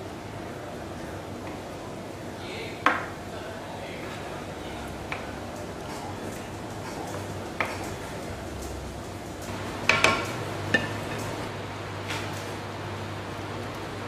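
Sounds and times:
low background hum: 0:00.0 - 0:14.0
spoon stirring and knocking pan: 0:09.5 - 0:11.4.

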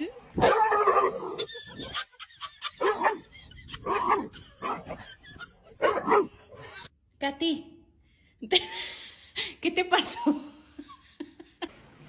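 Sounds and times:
dog barking: 0:00.4 - 0:01.4, 0:02.8 - 0:03.2, 0:05.8 - 0:06.5.

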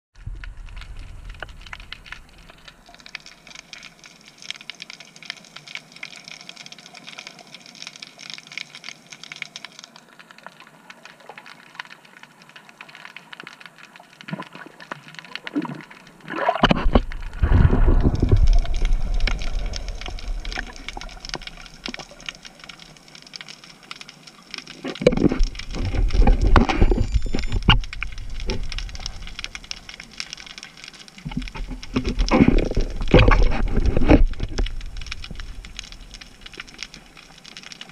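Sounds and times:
underwater crackle: 0:00.2 - 0:37.9
exhaled bubbles gurgling: 0:14.2 - 0:23.0, 0:24.7 - 0:37.9
rush of water: 0:14.2 - 0:37.9.

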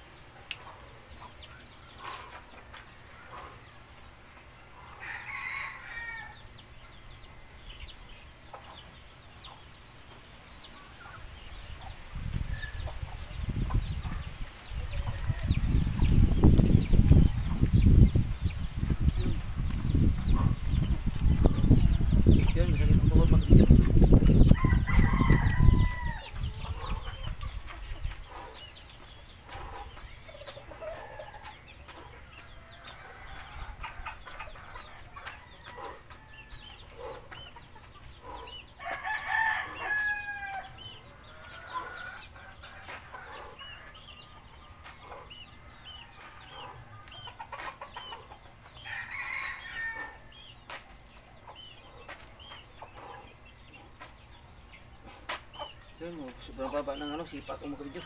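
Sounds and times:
rooster crowing: 0:05.0 - 0:06.4, 0:24.6 - 0:26.4, 0:38.8 - 0:40.8, 0:48.8 - 0:50.3
chicken clucking: 0:40.9 - 0:48.8.

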